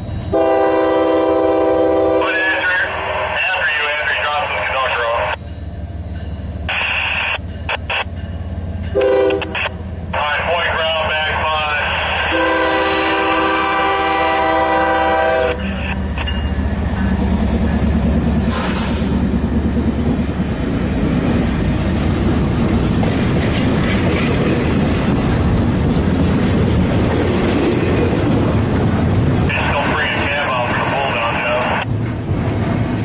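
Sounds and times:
train cars rumbling and clacking: 0.0s - 33.0s
locomotive horn chord: 0.3s - 2.6s, 8.9s - 9.8s, 11.6s - 16.0s.

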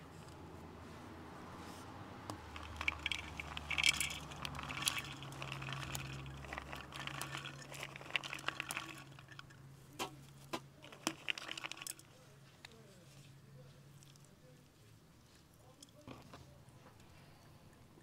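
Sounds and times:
dried beans rattling in clay pot: 2.3s - 12.4s.

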